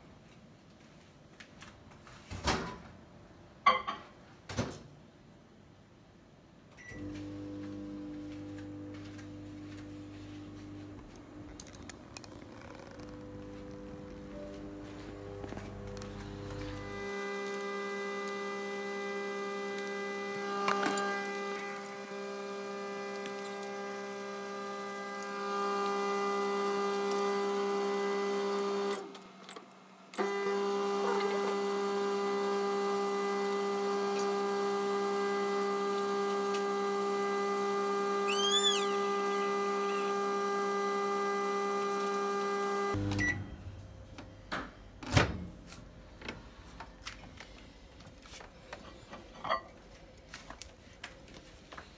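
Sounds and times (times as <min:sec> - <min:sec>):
microwave oven humming: 0:06.8 - 0:48.1.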